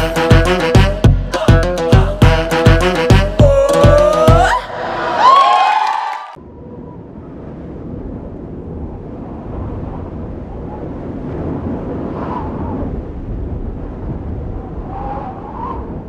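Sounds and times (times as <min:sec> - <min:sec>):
low rumbling noise: 0:04.3 - 0:05.6, 0:06.4 - 0:16.0
faint thin whistling tones: 0:14.8 - 0:16.0.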